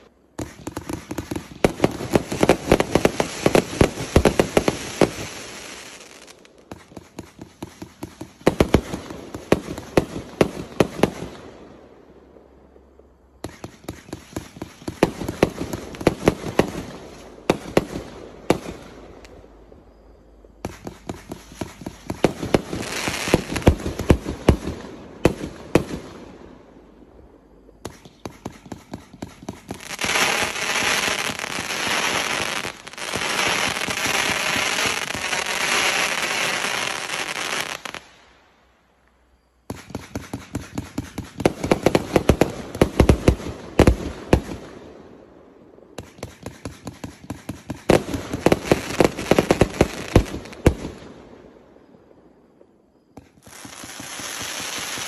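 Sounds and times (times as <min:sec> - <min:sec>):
dense firework crackling: 0:00.0 - 0:11.5, 0:20.5 - 0:26.9, 0:27.7 - 0:38.4, 0:46.0 - 0:51.1, 0:53.2 - 0:55.0.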